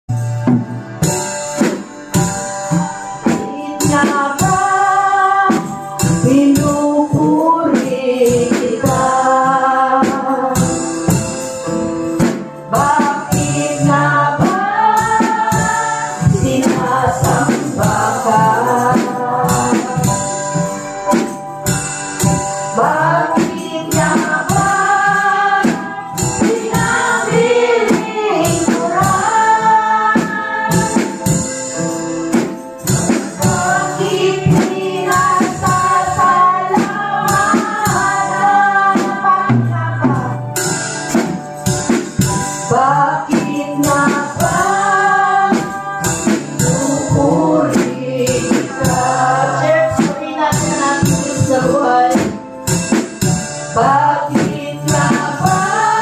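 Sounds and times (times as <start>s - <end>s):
drum kit beat: 0.1s - 56.0s
woman singing lead: 3.2s - 11.2s, 12.7s - 20.7s, 22.7s - 31.4s, 33.4s - 40.6s, 42.6s - 52.6s, 53.7s - 56.0s
backing singers: 22.8s - 31.2s, 43.9s - 52.1s.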